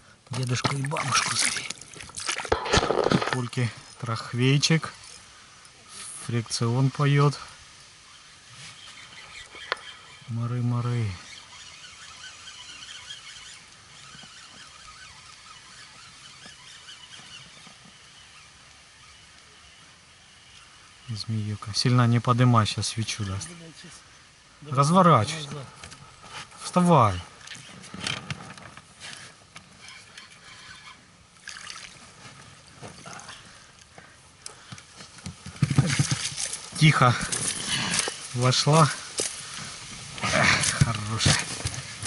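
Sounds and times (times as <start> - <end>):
water trickling and splashing: 0.3 - 5.4, 30.3 - 34.0
loud splashes: 0.7 - 2.7
fishing reel drag singing: 8.0 - 19.7, 29.8 - 31.5.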